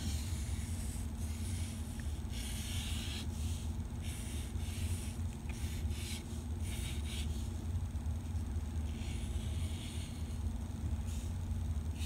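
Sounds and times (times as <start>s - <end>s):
marker scratching on paper: 0.0s - 7.5s
steady low hum: 0.0s - 12.0s.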